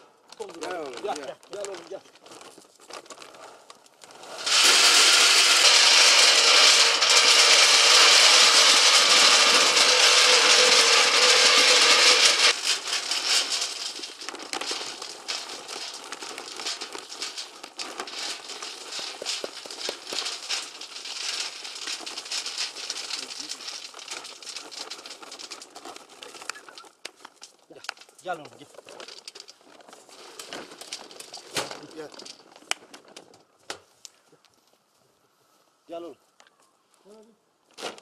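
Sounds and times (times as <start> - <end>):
pellets pattering: 0.3 - 33.3
pellets rattling on metal: 0.4 - 3.4, 4.1 - 32.5
metal drum ringing: 4.5 - 12.5.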